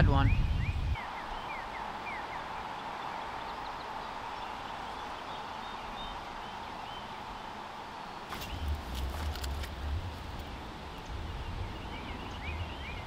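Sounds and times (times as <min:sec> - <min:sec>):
falling bird chirps: 0:08.1 - 0:09.8.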